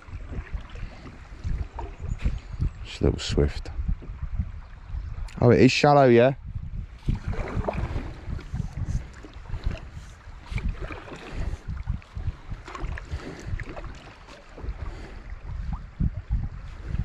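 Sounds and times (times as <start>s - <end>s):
river water splashing against kayak: 0.0s - 2.8s, 6.9s - 17.0s
wind buffeting microphone: 0.0s - 17.0s.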